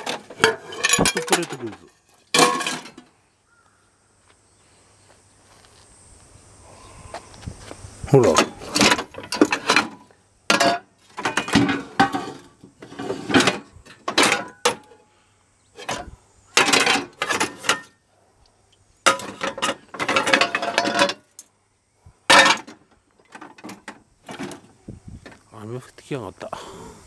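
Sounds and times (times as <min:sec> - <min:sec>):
metal scrap clattering and scraping: 0:00.0 - 0:03.1, 0:08.2 - 0:15.0, 0:15.8 - 0:18.0, 0:19.0 - 0:21.4, 0:22.3 - 0:25.4.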